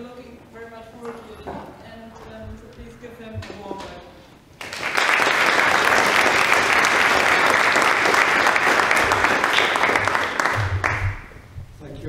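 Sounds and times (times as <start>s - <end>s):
audience applauding: 4.6s - 11.4s.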